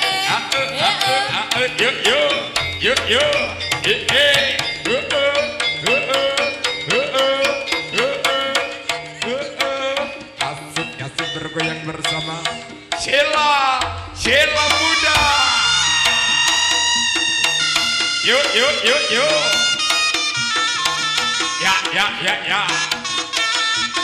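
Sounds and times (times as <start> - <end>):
steady held tone: 1.9 - 7.4, 12.7 - 19.8
gamelan playing: 1.9 - 9.2, 10.9 - 19.8
fast hand-drum strokes: 12.8 - 20.0.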